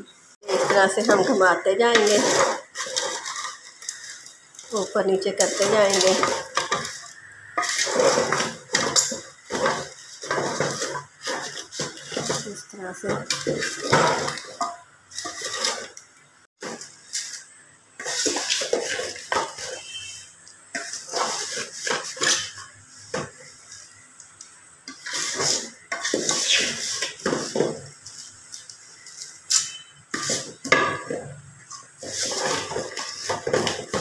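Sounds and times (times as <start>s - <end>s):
wooden spatula scraping metal pot: 0.4s - 24.1s, 24.8s - 34.0s.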